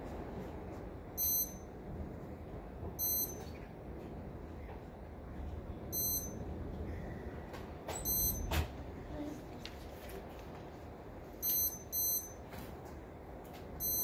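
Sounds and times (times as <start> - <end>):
high-pitched electronic beeps: 3.0 - 3.5, 6.0 - 6.4, 8.1 - 8.5, 11.4 - 12.4.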